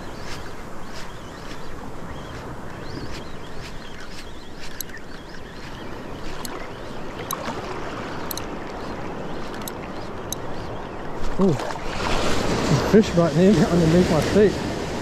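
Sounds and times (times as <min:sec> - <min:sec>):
seawater lapping around legs: 0:00.0 - 0:15.0
short sharp ticks: 0:08.2 - 0:08.5.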